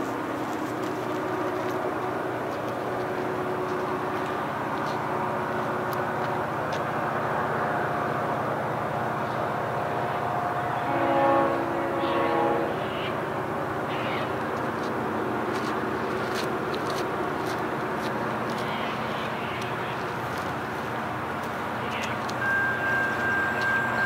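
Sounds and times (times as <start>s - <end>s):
freight train rumble: 0.0s - 24.0s
locomotive horn chord: 10.3s - 12.9s.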